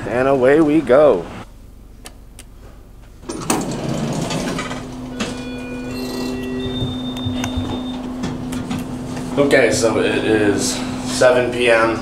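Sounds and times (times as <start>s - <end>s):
elevator hum: 3.2s - 12.0s
held higher tones: 5.1s - 8.6s.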